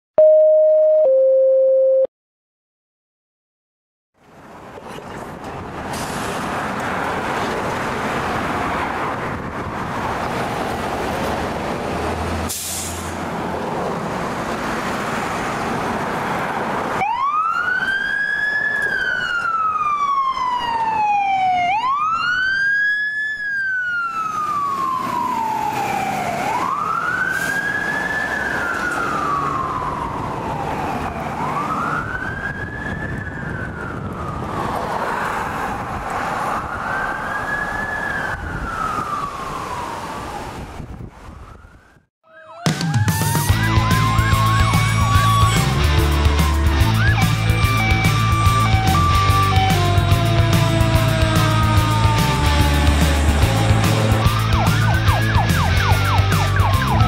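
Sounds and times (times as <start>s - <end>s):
brief hiss: 12.5s - 13.1s
siren wailing: 17.0s - 35.1s, 35.7s - 40.6s, 41.2s - 57.0s
fire engine diesel engine running: 43.5s - 56.6s.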